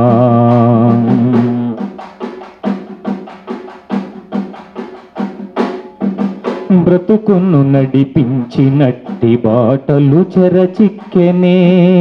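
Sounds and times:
man singing: 0.0 - 1.9, 6.7 - 12.0
drum playing quick rhythm: 0.0 - 12.0.

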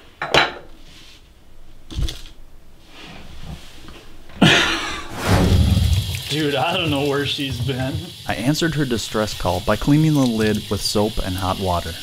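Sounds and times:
tap water running: 5.5 - 12.0.

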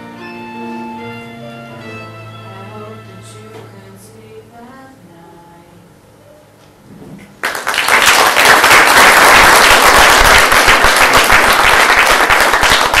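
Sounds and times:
audience applause: 7.4 - 13.0.

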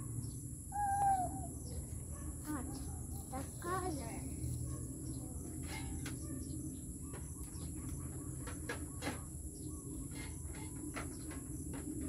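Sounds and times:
high insect drone: 0.0 - 8.2.

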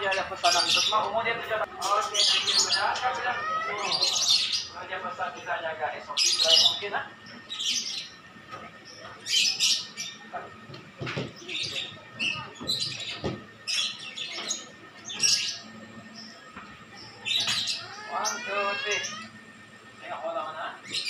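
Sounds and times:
cockatoos squawking: 0.0 - 4.8, 6.1 - 8.3, 17.0 - 19.4.

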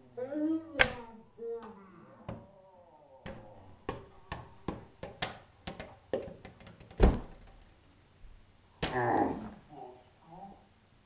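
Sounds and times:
sharp taps and knocks: 3.3 - 7.6.

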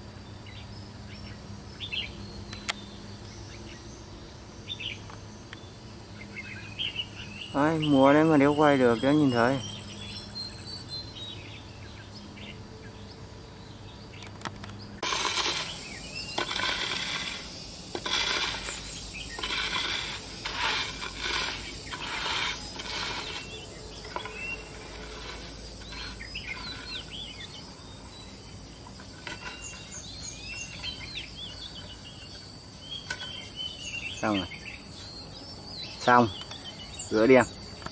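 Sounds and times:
small bird chirping: 0.2 - 37.9
rough rustling bursts: 15.0 - 28.1.

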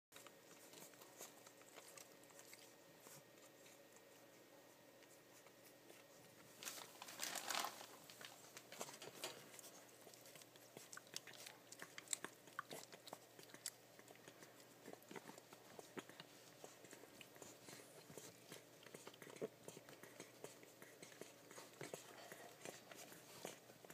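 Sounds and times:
puppies suckling wet smacking: 0.2 - 7.0, 7.9 - 23.9
puppies scuffling: 0.2 - 23.9.

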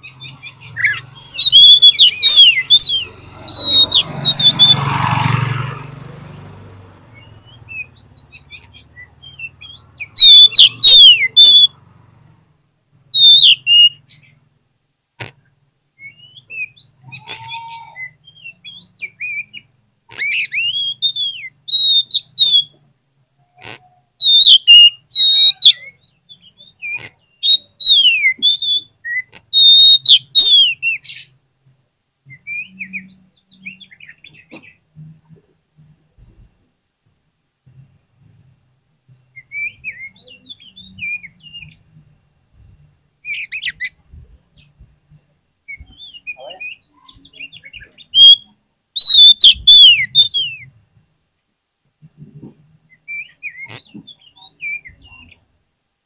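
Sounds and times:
bird singing whistles and chirps: 0.0 - 4.8, 7.1 - 11.8, 13.2 - 14.4, 16.0 - 22.8, 24.2 - 31.3, 32.3 - 34.4, 39.2 - 41.8, 45.7 - 50.7, 52.9 - 55.4.

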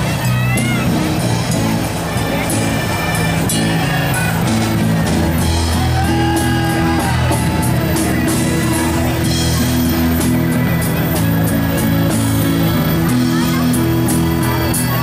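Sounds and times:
drums playing a steady beat: 0.0 - 15.0.

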